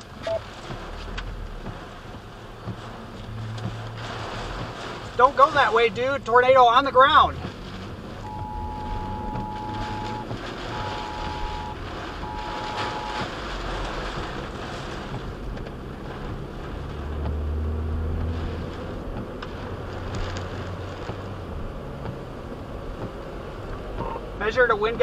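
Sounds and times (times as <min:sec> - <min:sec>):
deep rumble: 0:00.0 - 0:24.4
wind and rain battering a car: 0:00.0 - 0:25.0
emergency alert tone: 0:08.2 - 0:13.3.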